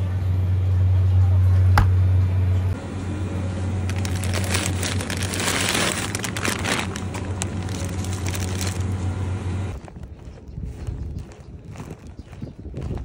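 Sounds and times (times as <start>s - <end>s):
steady low hum: 0.0s - 11.8s
plastic bag crinkling: 3.8s - 10.0s.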